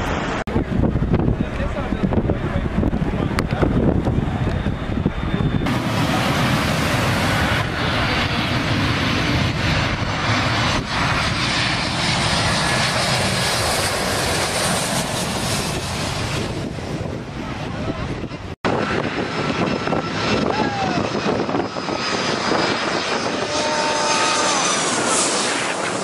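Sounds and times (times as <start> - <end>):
jet airliner engines passing overhead: 0.0 - 26.0.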